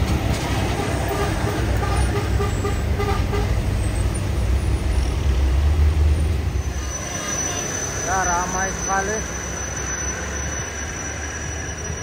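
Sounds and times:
truck engine rumble: 0.0 - 12.0
horn toots: 0.8 - 3.7.

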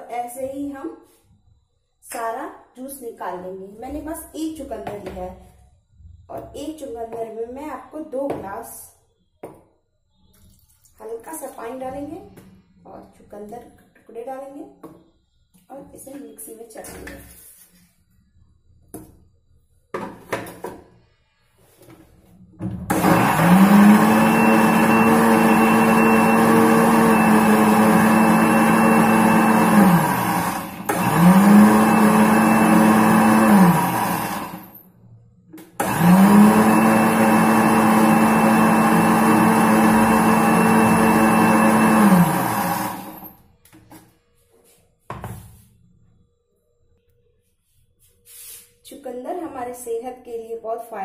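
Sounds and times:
mixer grinder whining and humming: 22.9 - 34.8, 35.8 - 43.4.

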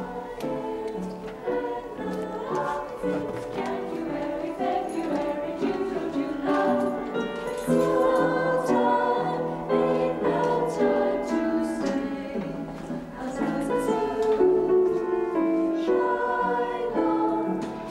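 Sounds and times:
choir singing in harmony: 0.0 - 17.9.

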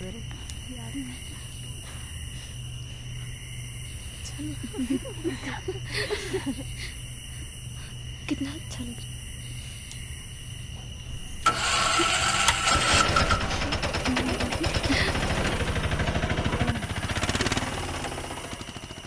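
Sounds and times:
auto-rickshaw engine running: 11.4 - 19.0.

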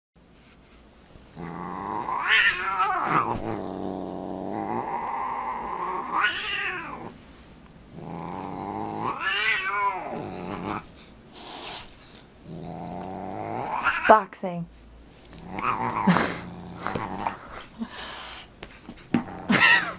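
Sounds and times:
cat growling and yowling: 1.4 - 7.2, 8.0 - 10.9, 12.5 - 14.1, 15.4 - 17.5.

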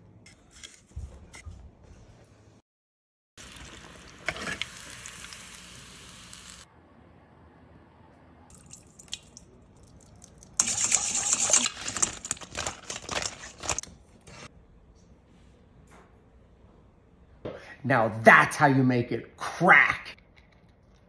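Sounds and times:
chicken deep-frying in oil: 3.4 - 6.7.

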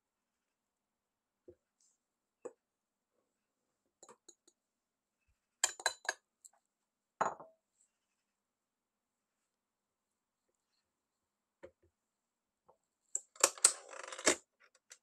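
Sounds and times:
glass bowl clinking on steel bowl: 5.6 - 6.2.

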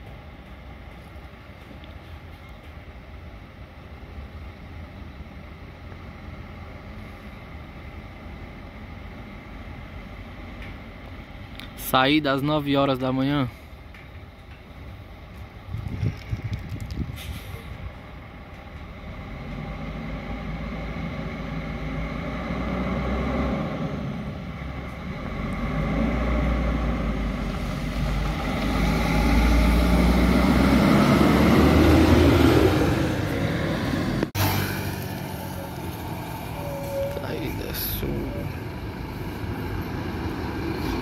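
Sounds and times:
coach diesel engine passing: 16.0 - 41.0.

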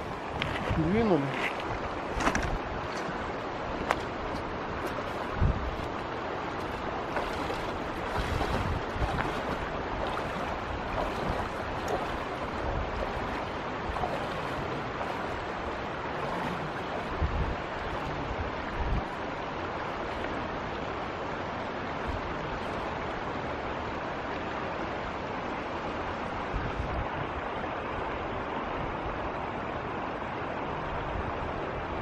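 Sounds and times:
wind buffeting microphone: 0.0 - 20.2, 26.4 - 27.5
river water rushing: 0.0 - 32.0.

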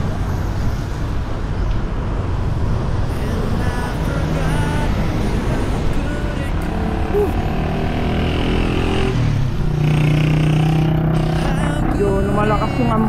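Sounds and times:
heavy low rumble: 0.0 - 9.8, 10.8 - 13.0
road traffic noise: 0.0 - 13.0.

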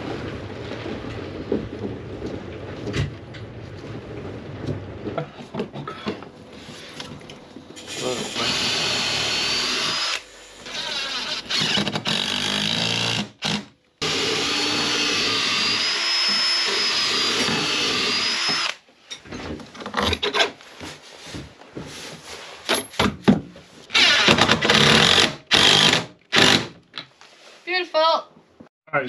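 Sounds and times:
cordless drill driving screws: 7.9 - 18.8, 23.9 - 26.7.

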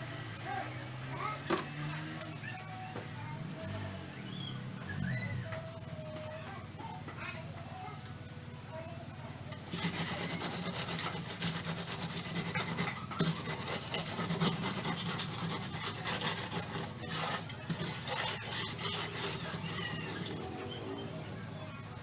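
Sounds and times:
tool rasping on cement: 9.5 - 20.8.

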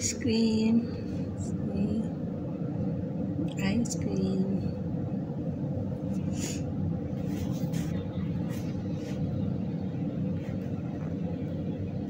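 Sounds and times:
steady low rumble: 0.0 - 12.0
soft brushing or rustling: 7.1 - 9.5.

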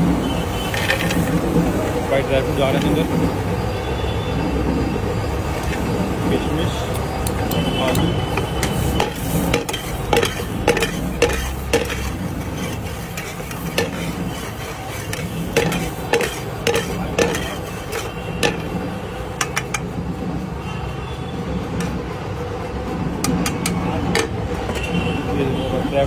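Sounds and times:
metal spatula clinking on pan: 8.4 - 18.7.

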